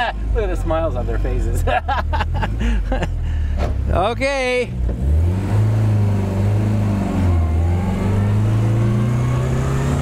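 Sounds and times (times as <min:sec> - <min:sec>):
car engine accelerating: 0:04.6 - 0:10.0.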